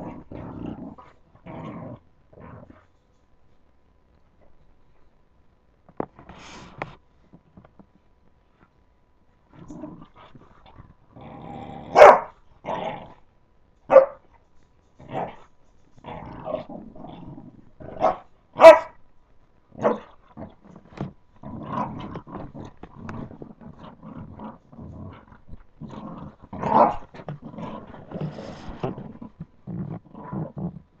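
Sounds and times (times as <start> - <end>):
puppies growling: 0.0 - 2.9, 9.5 - 13.3, 15.0 - 18.9, 19.8 - 31.0
puppies barking: 11.9 - 12.3, 13.9 - 14.2, 18.0 - 19.0.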